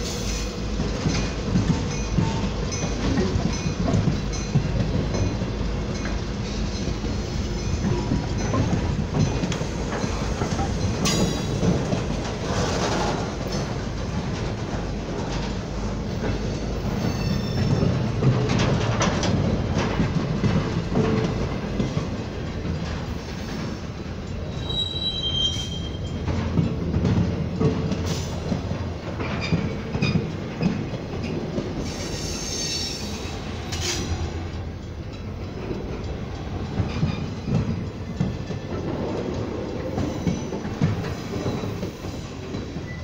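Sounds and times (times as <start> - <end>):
train wheels rumbling on rail: 0.0 - 43.0
high wheel squeals: 17.0 - 17.9, 24.4 - 26.2
clanks and clicks: 17.6 - 23.1.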